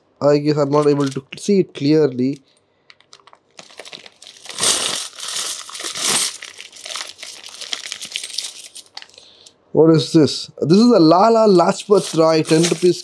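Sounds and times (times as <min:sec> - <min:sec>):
plastic packet crinkling: 0:00.7 - 0:01.4, 0:02.1 - 0:09.2, 0:11.6 - 0:13.0
coins shifting: 0:04.3 - 0:09.0, 0:11.8 - 0:13.0.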